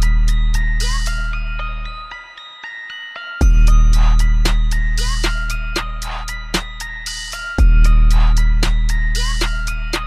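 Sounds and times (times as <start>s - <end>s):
electronic beat music: 0.0s - 2.6s, 3.2s - 10.0s
deep bass: 7.6s - 10.0s.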